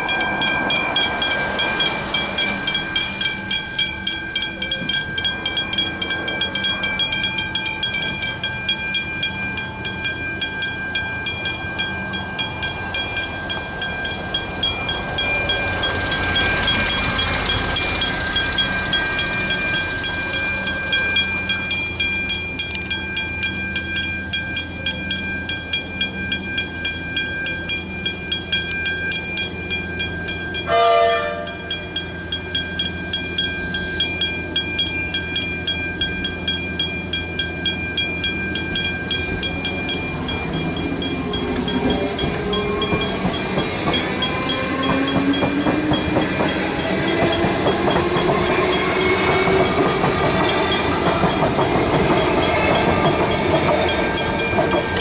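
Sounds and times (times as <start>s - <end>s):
level crossing bells ringing: 0.0s - 55.0s
train horn: 30.7s - 31.6s.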